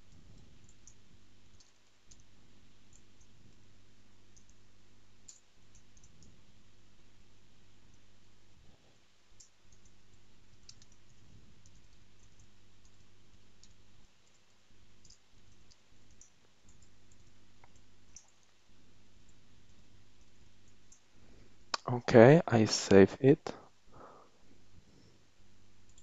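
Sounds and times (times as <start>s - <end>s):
low steady hum: 0.0s - 26.0s
keyboard typing clicks: 10.6s - 13.0s, 15.0s - 18.4s.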